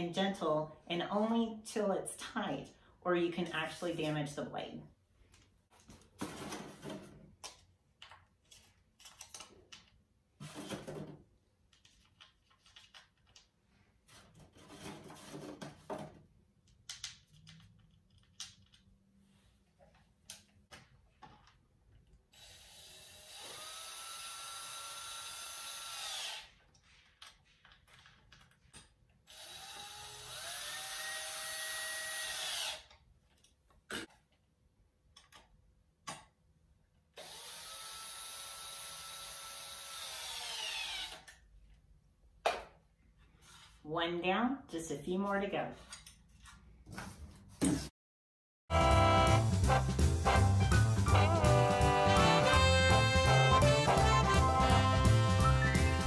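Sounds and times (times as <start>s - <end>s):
cordless drill driving screws: 22.4s - 26.6s, 29.3s - 32.9s, 37.2s - 41.4s.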